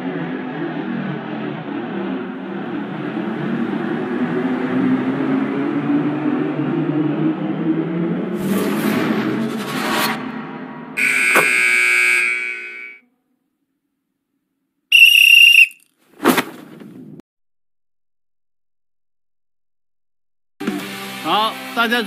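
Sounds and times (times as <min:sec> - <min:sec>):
high steady tone: 0:11.0 - 0:13.0, 0:14.9 - 0:15.8
referee's whistle blast: 0:11.0 - 0:13.0, 0:14.9 - 0:15.8.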